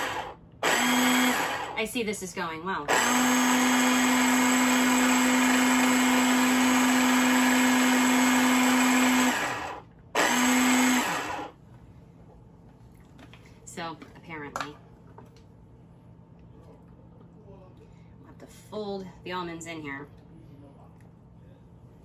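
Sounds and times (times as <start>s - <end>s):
food processor running: 0.0s - 1.8s, 2.9s - 11.6s.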